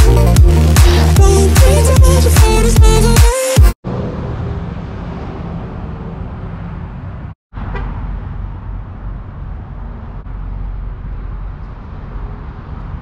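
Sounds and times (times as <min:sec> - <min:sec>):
road traffic rumble: 0:03.8 - 0:13.0.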